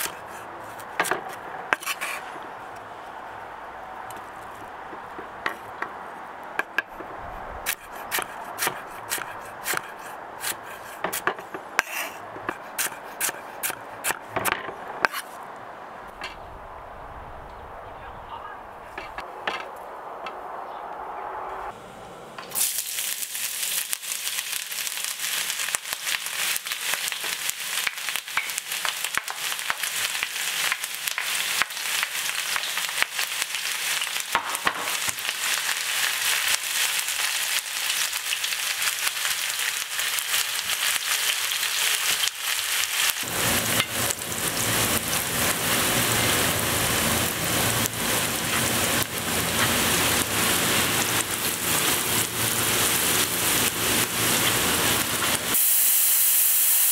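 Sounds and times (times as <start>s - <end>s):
low rumble: 16.2s - 21.9s
oil sizzling in a pan: 22.5s - 56.9s.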